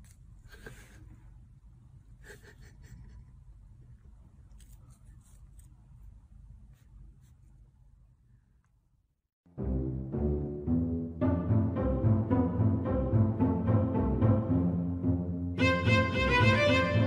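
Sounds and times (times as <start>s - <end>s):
low room hum: 0.0s - 9.2s.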